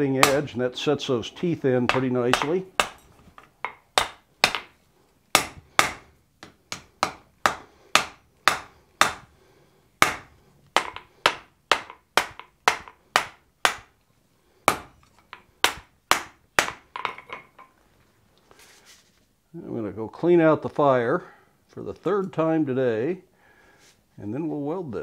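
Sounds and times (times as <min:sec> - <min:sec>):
hammer striking iron on anvil: 0:01.9 - 0:04.7, 0:10.0 - 0:13.9.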